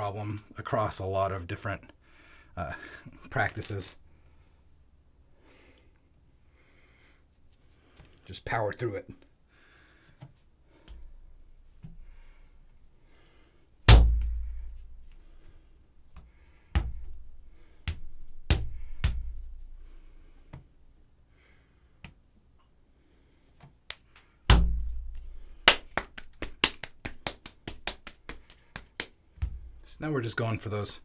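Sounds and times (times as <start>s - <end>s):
hands slapping clay: 16.1s - 19.6s, 23.6s - 29.8s.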